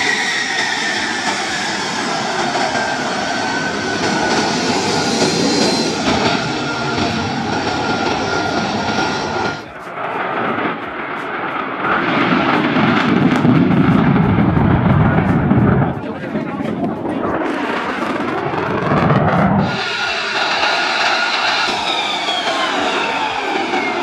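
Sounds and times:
jet engine with high whine: 0:00.0 - 0:24.0
jet taking off on afterburner: 0:00.0 - 0:24.0.

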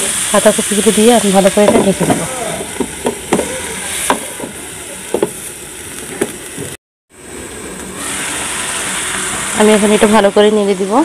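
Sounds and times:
cabbage sizzling in oil: 0:00.0 - 0:06.8.

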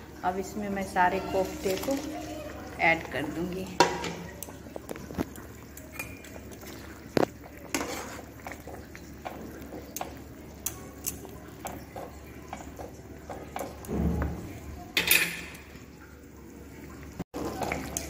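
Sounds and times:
plastic spatula scraping a pan: 0:07.2 - 0:08.8.

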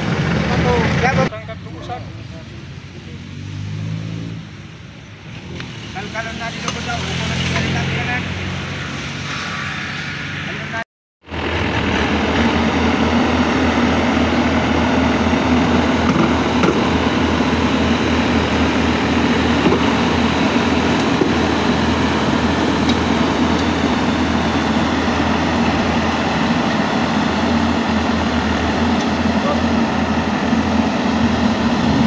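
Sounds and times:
diesel engine humming: 0:00.0 - 0:03.7, 0:10.5 - 0:32.0.

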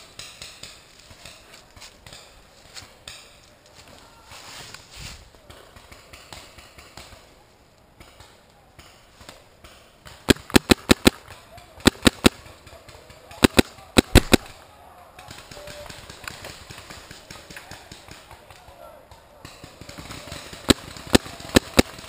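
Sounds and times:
paintball markers firing: 0:09.6 - 0:14.6, 0:15.2 - 0:22.0.

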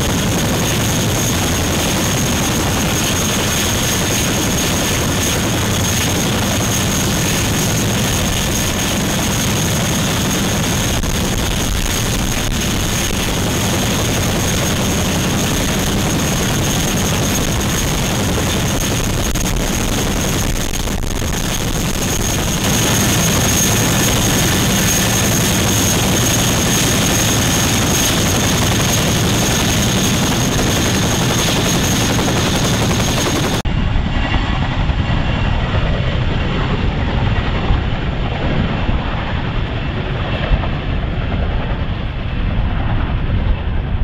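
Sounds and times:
high-pitched whine: 0:00.0 - 0:33.6
helicopter rotor and engine noise: 0:00.0 - 0:44.0.

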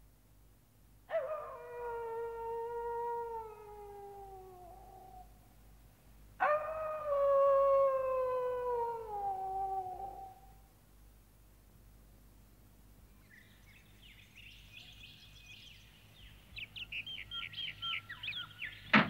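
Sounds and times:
wolf howling: 0:01.1 - 0:05.3, 0:06.4 - 0:10.6.

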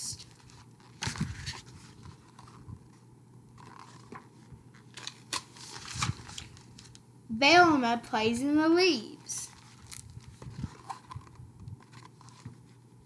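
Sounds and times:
book pages rustling: 0:00.2 - 0:07.0, 0:09.5 - 0:12.9.

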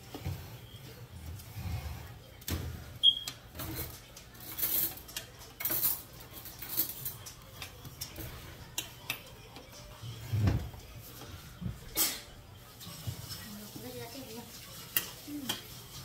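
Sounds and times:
utensils clicking on ceramic dishes: 0:03.2 - 0:09.8, 0:14.8 - 0:15.8.

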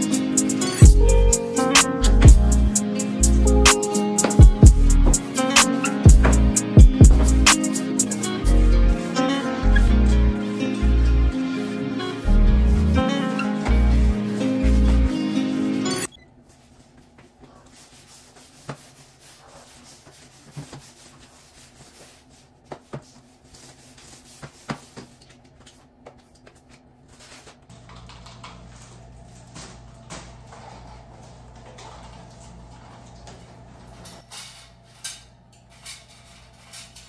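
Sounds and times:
mop pad rubbing on tiled floor: 0:02.7 - 0:09.3, 0:12.6 - 0:27.6.

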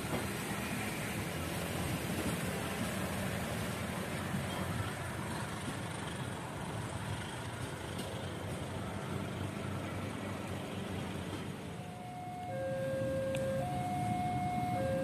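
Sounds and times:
distant engines rumbling: 0:00.0 - 0:15.0.

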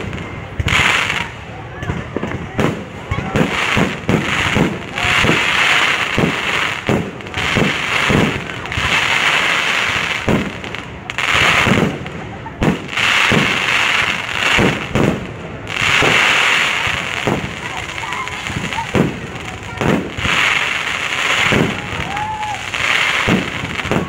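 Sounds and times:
firework pops and bangs: 0:00.0 - 0:24.0
fireworks fountains hissing and crackling: 0:00.0 - 0:24.0.

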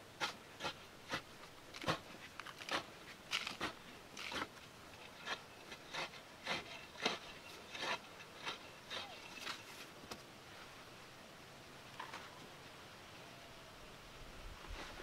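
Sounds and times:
digging tool chopping dry earth: 0:00.1 - 0:10.2.

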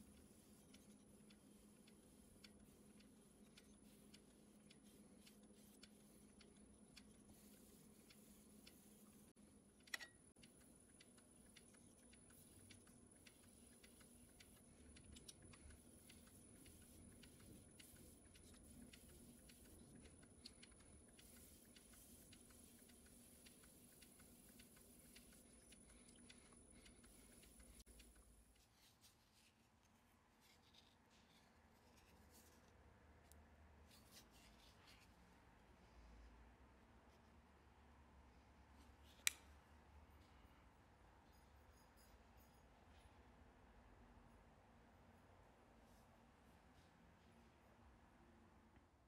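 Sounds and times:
stick scratching while stirring glue: 0:00.0 - 0:09.4, 0:10.5 - 0:32.8
light ticks: 0:00.0 - 0:28.3.

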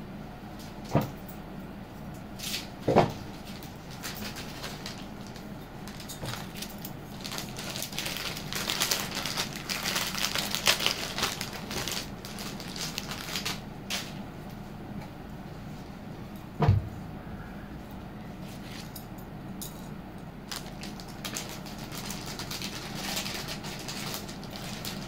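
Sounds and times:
jewellery packaging rustling: 0:05.9 - 0:13.6, 0:20.5 - 0:25.0.

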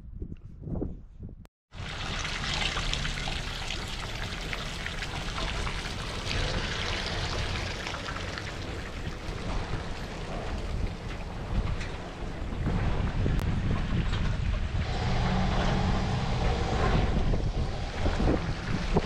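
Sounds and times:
running water splashing: 0:01.8 - 0:13.4.

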